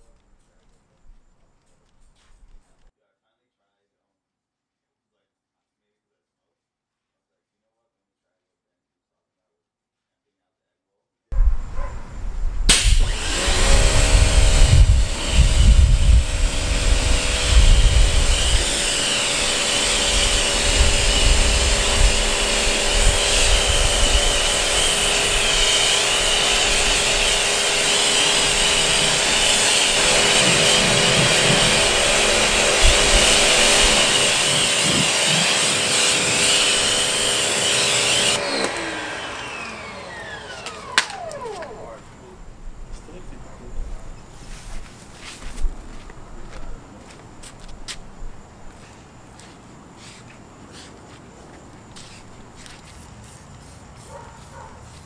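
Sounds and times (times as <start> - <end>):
electric power tool humming: 12.7 - 42.3.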